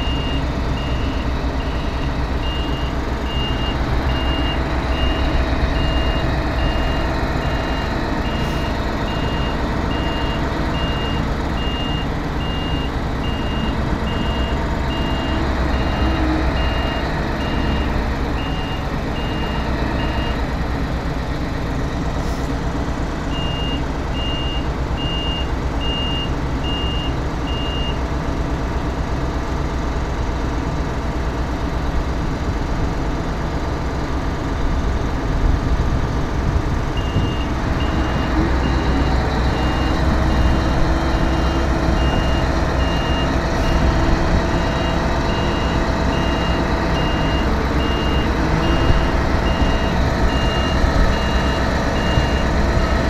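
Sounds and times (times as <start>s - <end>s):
reversing alarm beeping: 0.0s - 20.4s, 37.0s - 52.9s
heavy diesel engines running hard: 0.0s - 53.0s.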